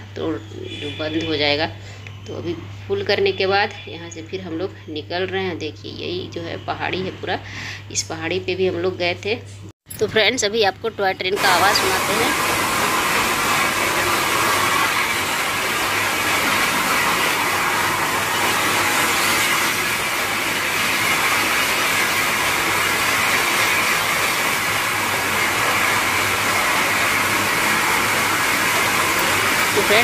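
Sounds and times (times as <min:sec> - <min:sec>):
steam train running on track: 0:11.4 - 0:30.0.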